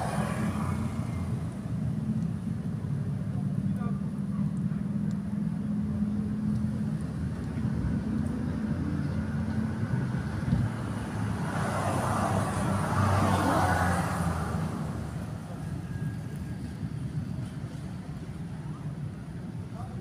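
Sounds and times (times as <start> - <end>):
vehicle passing: 0.0 - 2.0, 7.6 - 16.6
engine humming: 0.0 - 19.4.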